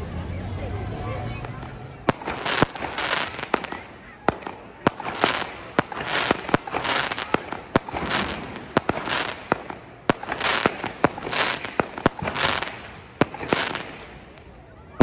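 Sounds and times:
fireworks crackling: 0:01.3 - 0:15.0
fireworks bangs: 0:01.4 - 0:15.0.

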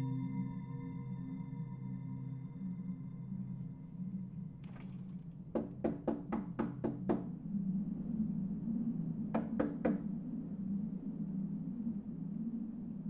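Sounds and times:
fist knocking on door: 0:05.6 - 0:07.3, 0:09.4 - 0:10.0.

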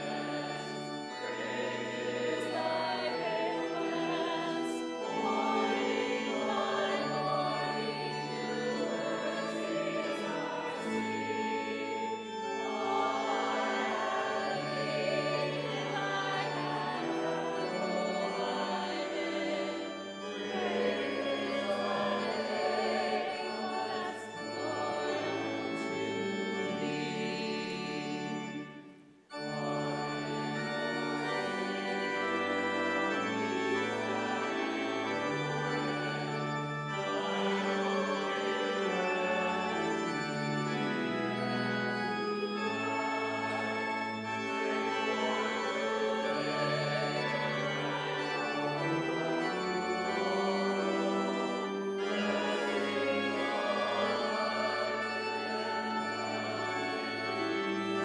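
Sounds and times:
congregation singing a hymn: 0:00.0 - 0:58.0
organ chords: 0:00.0 - 0:58.0.

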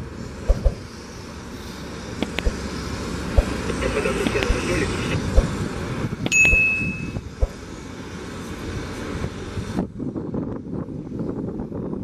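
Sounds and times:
airport ramp noise: 0:00.0 - 0:07.8
wind thumps on microphone: 0:00.4 - 0:00.8, 0:03.3 - 0:07.6
faint voices: 0:03.6 - 0:05.3
short high beep: 0:06.3 - 0:07.2.

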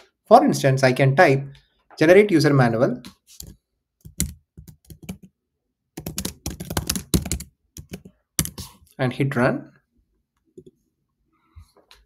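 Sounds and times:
computer keyboard typing: 0:03.4 - 0:05.3, 0:06.0 - 0:08.7.

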